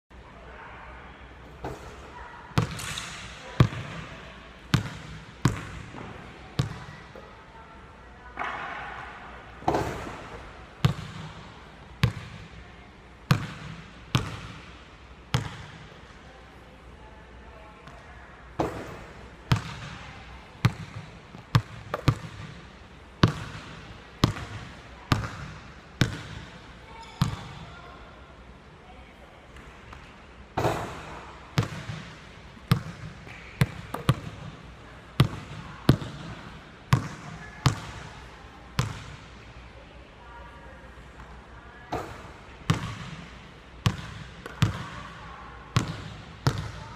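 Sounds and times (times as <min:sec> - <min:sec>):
basketball bouncing on hardwood floor: 0:43.8 - 0:45.0.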